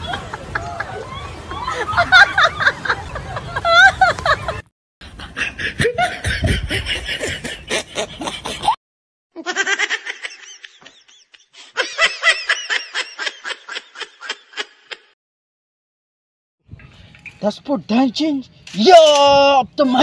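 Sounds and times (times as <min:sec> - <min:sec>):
rapid rhythmic laughter: 0:01.6 - 0:08.8.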